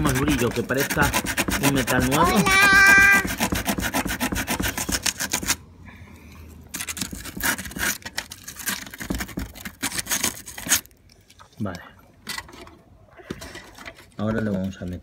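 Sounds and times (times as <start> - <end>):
sandpaper rubbing on metal: 0.0 - 5.6.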